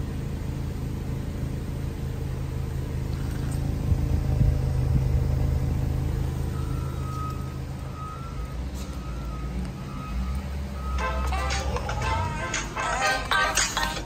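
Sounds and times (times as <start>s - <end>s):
car engine idling: 0.0s - 14.0s
music: 11.0s - 14.0s.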